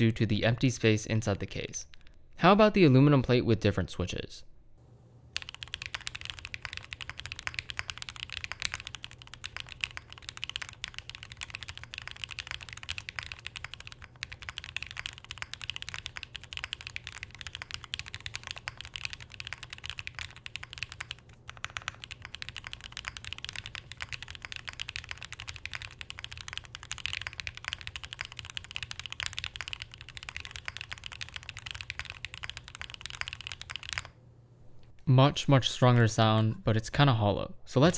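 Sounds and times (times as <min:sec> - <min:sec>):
mechanical keyboard typing: 0:05.4 - 0:34.2.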